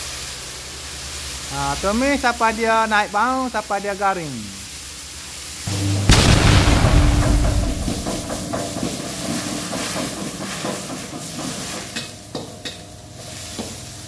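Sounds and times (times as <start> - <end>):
food sizzling in hot oil: 0.0 - 14.0
loud rumbling boom: 5.7 - 9.5.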